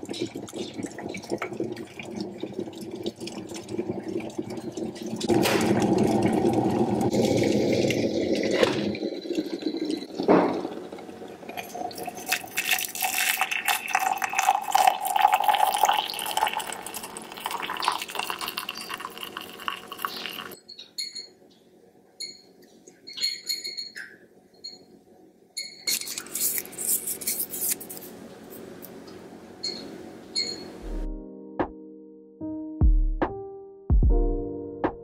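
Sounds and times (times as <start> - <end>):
electric kettle boiling: 0.0 - 20.6
water pouring into a mug: 0.0 - 20.6.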